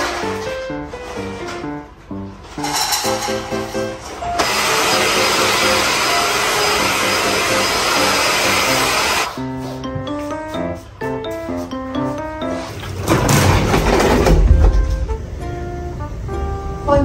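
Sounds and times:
background music: 0:00.0 - 0:17.0
vacuum cleaner running: 0:03.6 - 0:09.7.

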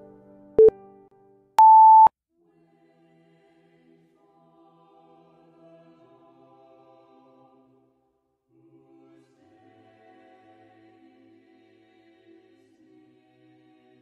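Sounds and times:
electronic timer beeps: 0:01.6 - 0:02.1
faint choral music: 0:02.4 - 0:14.0.

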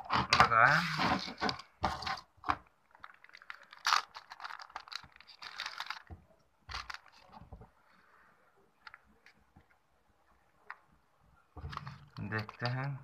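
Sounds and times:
plastic bag crinkling: 0:02.9 - 0:07.4.

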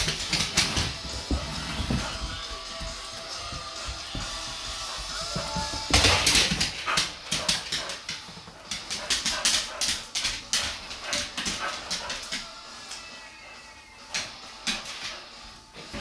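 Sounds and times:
dog claws clicking on hard floor: 0:00.0 - 0:02.4, 0:03.4 - 0:12.5.

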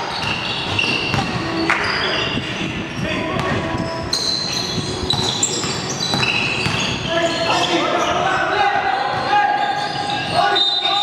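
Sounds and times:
sneakers squeaking on floor: 0:00.0 - 0:11.0
basketball dribbling: 0:00.1 - 0:02.0, 0:05.0 - 0:07.0.

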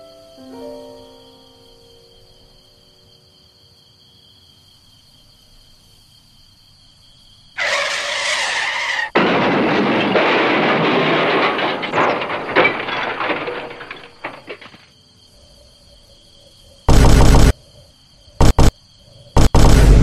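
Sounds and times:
car tyre screech: 0:07.6 - 0:09.2
loud crash: 0:07.6 - 0:14.8
scattered clatter: 0:09.1 - 0:14.9, 0:16.9 - 0:17.5, 0:18.4 - 0:18.7, 0:19.4 - 0:20.0.

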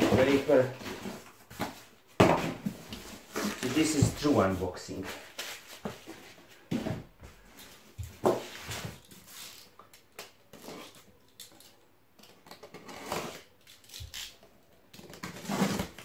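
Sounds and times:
knife slitting packing tape: 0:12.5 - 0:16.0.

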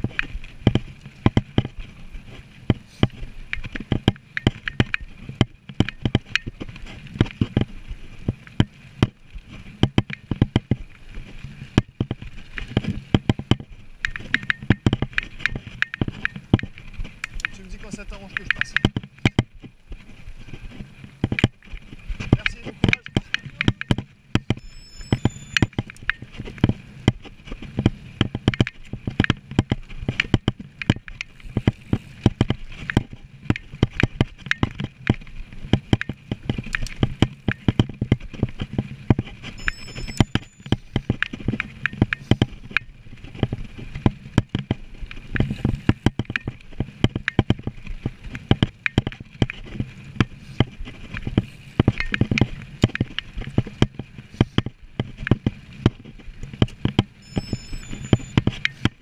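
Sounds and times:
bike clattering and rattling: 0:00.0 - 0:57.2
tyre rumble on dirt: 0:25.6 - 0:57.2.

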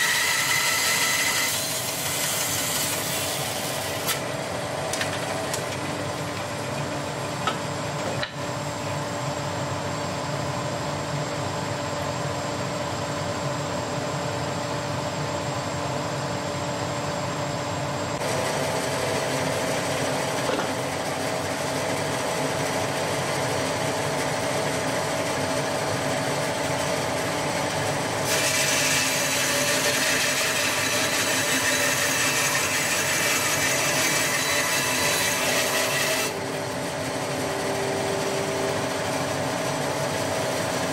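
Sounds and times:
blade sawing through wood: 0:00.0 - 0:04.3, 0:28.2 - 0:36.4
bandsaw humming: 0:00.0 - 0:08.4, 0:26.7 - 0:40.9.

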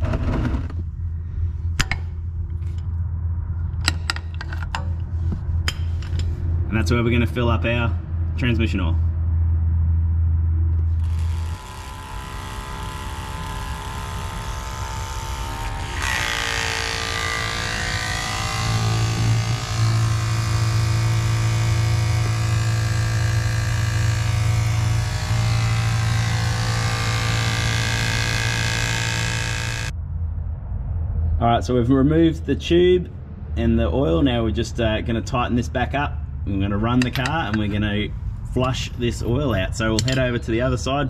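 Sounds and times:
electric water pump humming: 0:10.9 - 0:29.9.

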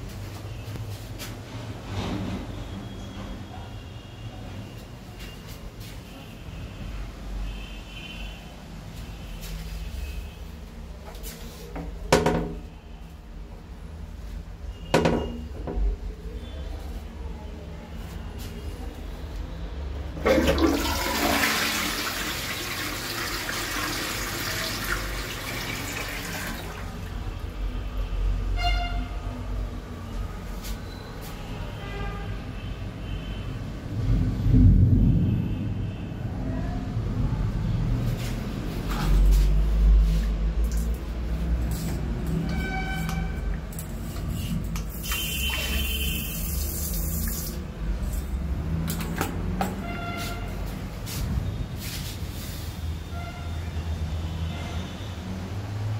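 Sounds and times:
toilet flushing water gush: 0:20.2 - 0:27.2, 0:44.8 - 0:47.6.

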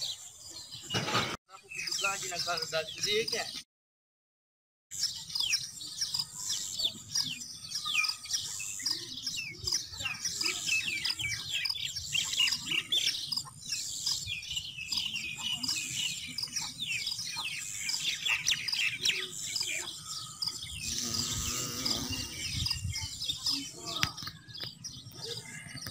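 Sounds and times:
small birds chirping: 0:00.0 - 0:03.6, 0:04.9 - 0:25.9.

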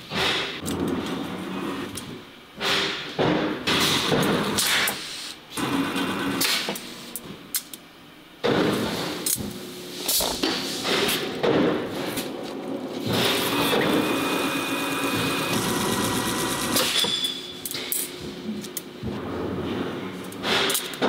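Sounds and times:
steady machine hum: 0:05.4 - 0:20.4
press working: 0:12.6 - 0:17.4.

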